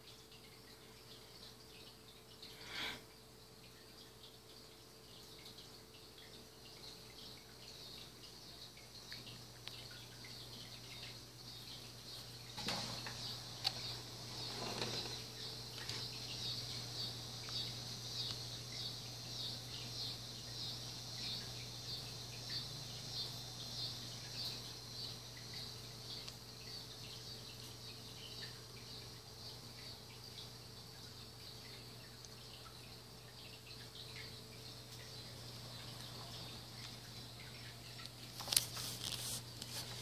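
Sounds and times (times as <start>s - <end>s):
insects chirping chorus: 0.5s - 40.0s
rustling: 12.6s - 16.2s, 38.3s - 40.0s.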